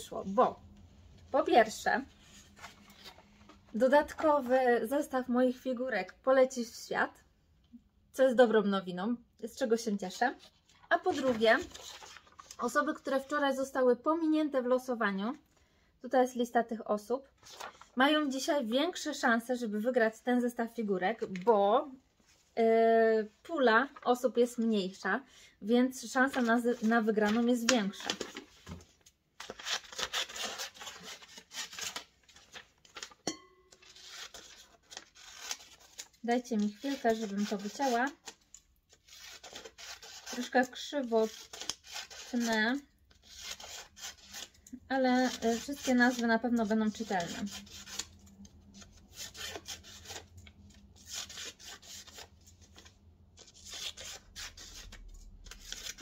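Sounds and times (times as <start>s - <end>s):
paper rustling: 1.1s - 4.5s, 10.4s - 12.8s, 17.4s - 18.0s, 26.2s - 44.6s, 45.2s - 56.0s
paper rustling and flapping: 2.2s - 4.4s, 10.5s - 12.7s, 17.4s - 18.0s, 26.3s - 33.2s
scissors snipping paper: 33.0s - 50.3s.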